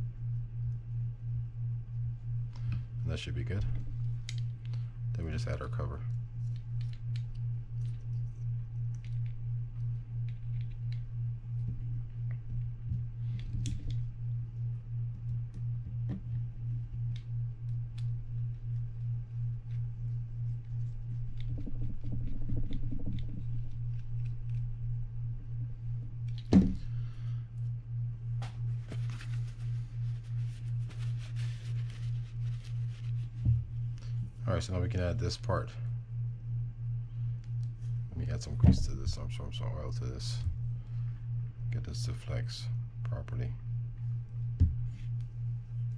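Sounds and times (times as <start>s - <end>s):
low pulsing hum: 0.0s - 45.9s
paper towel rustling: 28.4s - 33.4s.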